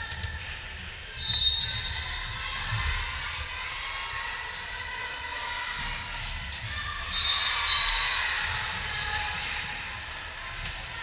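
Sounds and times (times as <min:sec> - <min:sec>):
overlapping voices in a gym: 0:00.0 - 0:11.0
shrill referee's whistle: 0:01.2 - 0:02.0, 0:07.1 - 0:08.3.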